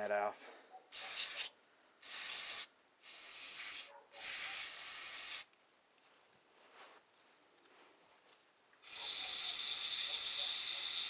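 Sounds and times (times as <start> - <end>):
aerosol spray can hissing: 1.0 - 5.5, 8.8 - 11.0
faint handling sounds: 5.5 - 8.8.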